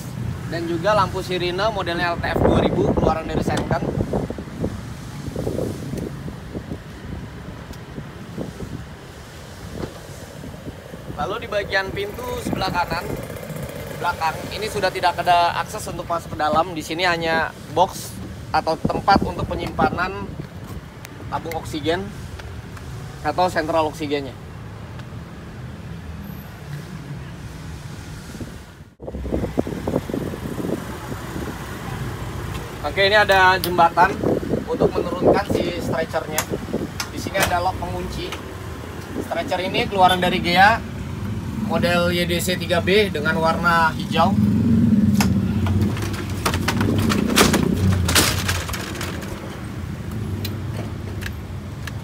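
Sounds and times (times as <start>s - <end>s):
wooden panel knocking and clattering: 45.7s - 49.4s
metal stretcher clanking and rattling: 45.7s - 49.7s.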